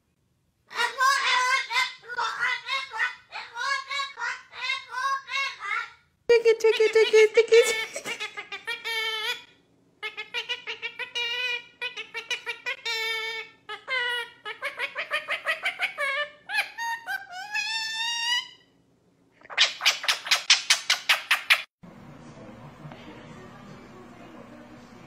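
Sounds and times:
low room hum: 0.0 - 25.0
parakeet mimicking laughter: 0.7 - 18.5
woman laughing: 6.3 - 8.5.

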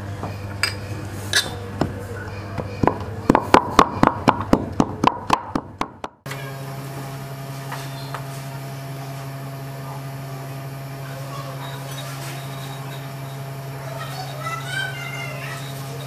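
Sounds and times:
steady low hum: 0.0 - 16.0
pestle pounding in wooden mortar: 2.6 - 6.2.

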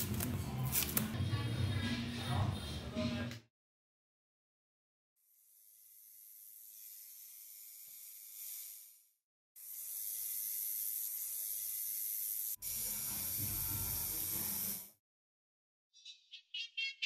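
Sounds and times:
tattoo machine hissing and humming: 5.2 - 15.0.

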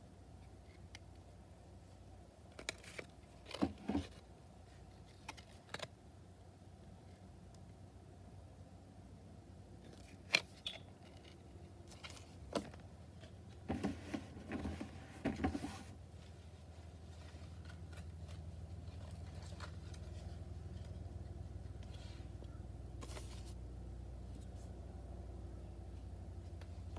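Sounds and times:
low steady hum: 0.0 - 26.9
cards scraping and rustling: 2.5 - 6.0, 9.8 - 22.4, 23.0 - 23.6.

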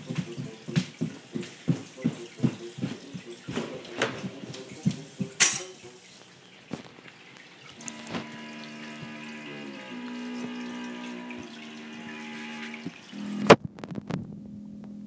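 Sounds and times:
orchestral music through tv speaker: 0.0 - 6.0.

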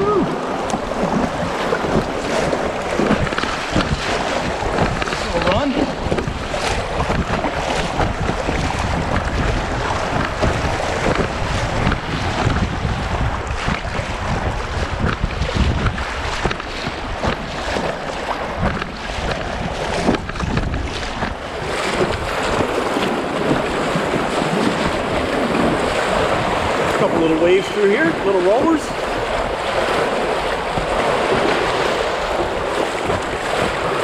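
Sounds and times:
paddle splashes: 0.0 - 34.0
river water splashing: 0.0 - 34.0
wind buffeting microphone: 0.0 - 34.0.

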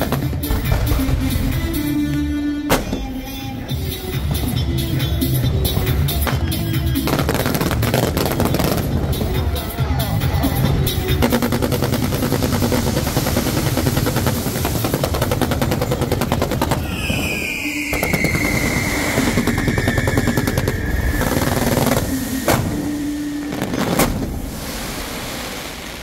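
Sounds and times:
fireworks crackling: 0.0 - 26.0
sharp firework bangs: 11.2 - 25.8
firework whistle: 11.2 - 26.0.

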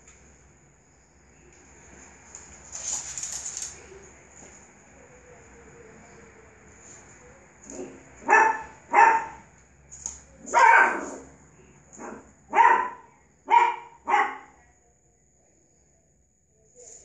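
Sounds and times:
puppy yapping barks: 8.2 - 9.4, 10.4 - 11.3, 12.0 - 14.6.

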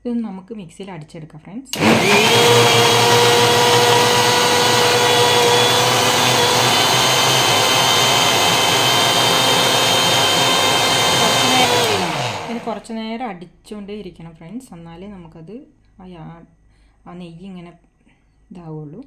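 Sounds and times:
mixer grinder running: 1.8 - 12.8.

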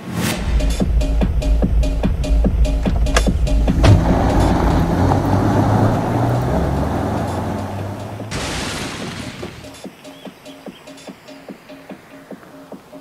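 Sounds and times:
car engine pulling away: 0.5 - 9.6.

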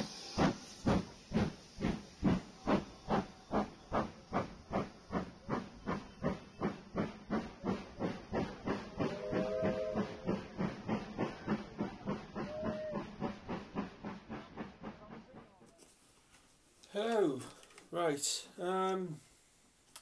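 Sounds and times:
steam locomotive chuffing: 0.0 - 15.7
steam whistle chord: 9.1 - 10.3.

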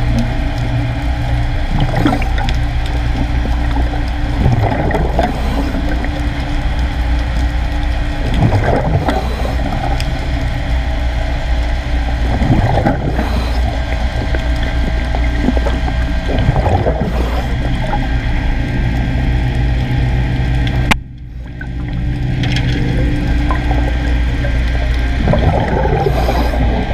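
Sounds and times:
underwater machinery hum: 0.0 - 26.9
diver exhaling bubbles: 1.6 - 6.3, 8.2 - 10.4, 12.2 - 18.2, 21.4 - 26.9.

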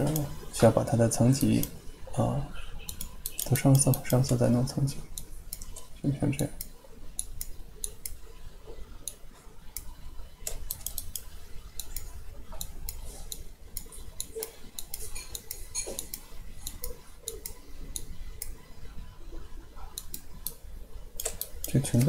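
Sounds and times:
mouse and keyboard clicking: 2.8 - 4.4, 5.2 - 5.9, 9.1 - 18.6, 19.9 - 20.6, 21.2 - 22.0.

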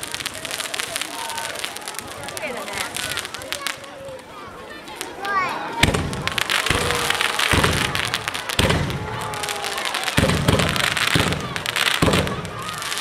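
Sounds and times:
fireworks fountains hissing crackle: 0.0 - 13.0
low booms: 5.8 - 12.8.

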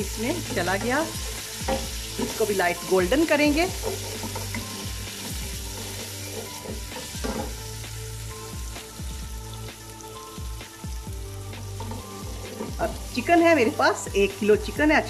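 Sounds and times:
onions sizzling in hot oil: 0.0 - 15.0
wooden spoon scraping a pot: 3.5 - 7.6.

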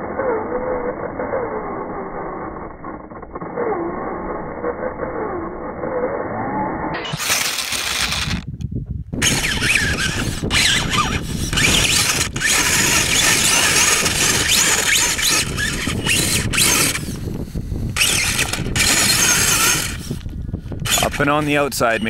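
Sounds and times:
electric motor whining under load: 0.0 - 8.5, 9.2 - 22.0
tyres scrabbling in soil: 7.0 - 8.5, 17.9 - 22.0.

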